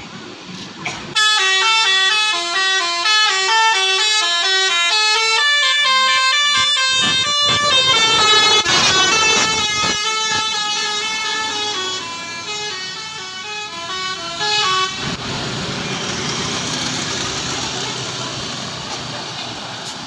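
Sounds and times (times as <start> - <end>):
bus engine passing: 0.0 - 20.0
musical air horn melody: 1.2 - 15.0.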